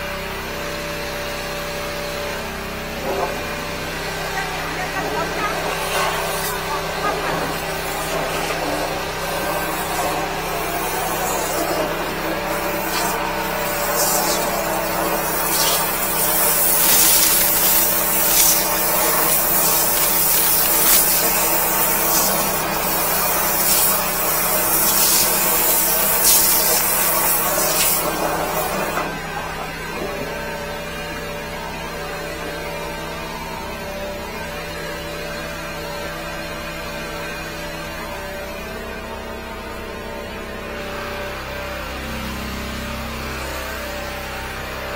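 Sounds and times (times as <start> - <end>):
engine hum: 0.0 - 44.9
water jet spray hiss: 5.0 - 28.9.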